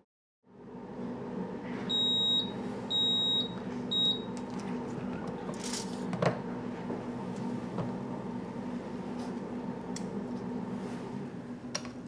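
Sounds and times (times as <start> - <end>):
steady hum: 0.5 - 12.0.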